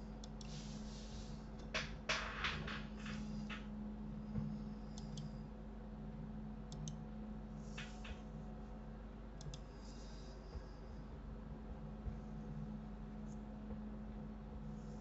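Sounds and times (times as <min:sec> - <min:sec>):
low electrical hum: 0:00.0 - 0:15.0
computer mouse clicking: 0:00.2 - 0:00.6, 0:05.0 - 0:05.4, 0:06.7 - 0:07.0, 0:09.4 - 0:09.7.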